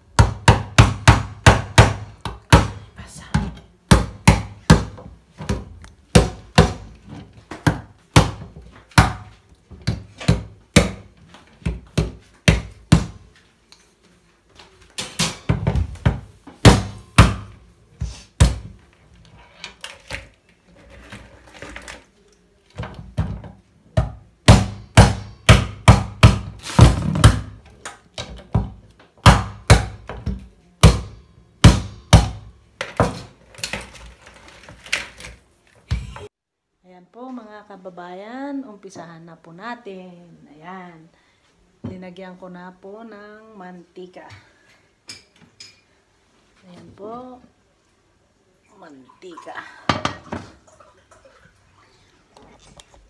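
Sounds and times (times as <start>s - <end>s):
wooden mallet pounding crab claws: 0.2s - 2.8s, 24.0s - 27.6s, 28.6s - 30.1s, 30.8s - 33.1s.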